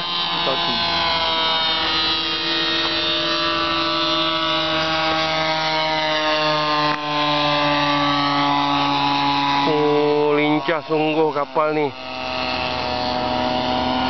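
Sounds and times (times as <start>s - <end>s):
model airplane engine buzzing: 0.0s - 14.0s.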